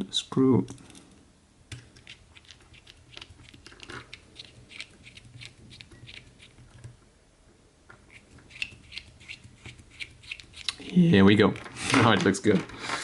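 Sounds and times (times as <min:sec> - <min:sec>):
screwdriver clicks and creaks: 0:01.7 - 0:06.9, 0:08.1 - 0:10.8.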